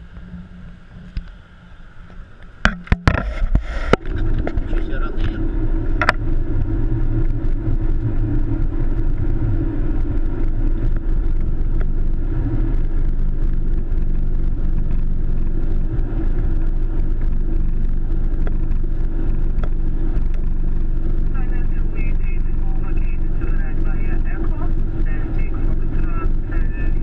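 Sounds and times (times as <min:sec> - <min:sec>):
airliner engines rumbling: 0:00.0 - 0:27.0
wheels rolling: 0:00.0 - 0:27.0
faint ticks: 0:18.2 - 0:20.5.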